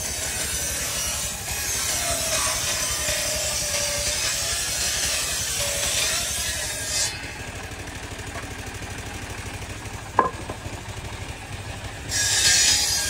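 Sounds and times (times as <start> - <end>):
saw blade cutting wood: 0.0 - 8.6, 9.4 - 11.2, 12.0 - 13.0
circular saw running: 0.0 - 13.0
sharp knock: 10.2 - 10.8.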